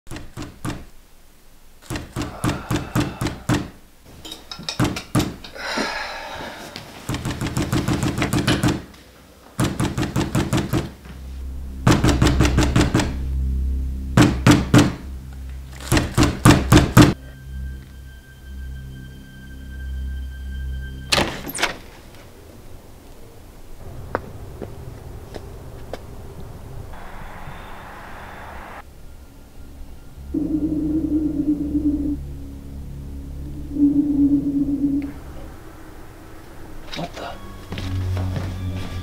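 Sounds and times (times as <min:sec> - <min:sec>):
low music drone: 0:11.0 - 0:39.0.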